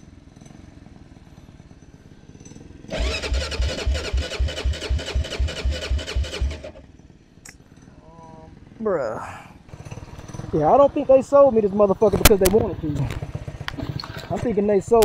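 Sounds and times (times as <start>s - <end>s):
electric starter cranking engine: 2.9s - 6.9s.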